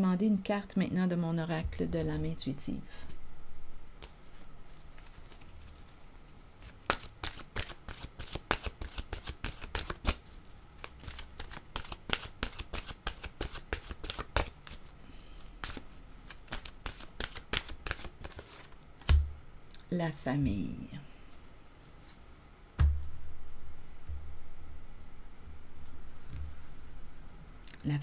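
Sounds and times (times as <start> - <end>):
cards being shuffled: 4.0 - 19.2.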